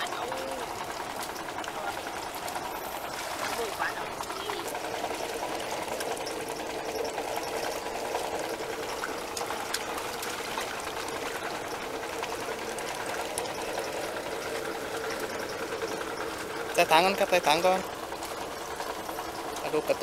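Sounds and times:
moving water: 0.0s - 20.0s
water pump humming: 0.0s - 20.0s.

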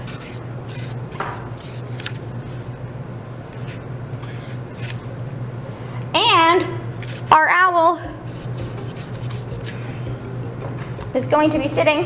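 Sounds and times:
marker scratching on paper: 0.0s - 2.2s, 3.6s - 5.0s, 8.2s - 9.8s
steady low hum: 0.0s - 12.0s.

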